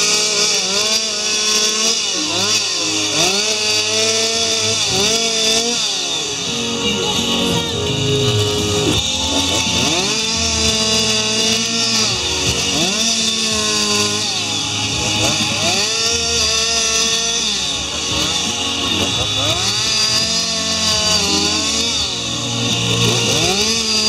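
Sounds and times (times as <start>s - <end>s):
chainsaw carving wood: 0.0s - 24.0s.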